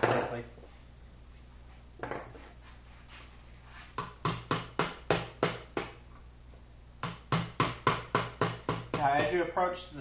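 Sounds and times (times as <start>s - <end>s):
mallet tapping wood chisel: 4.0s - 6.0s, 7.0s - 9.4s.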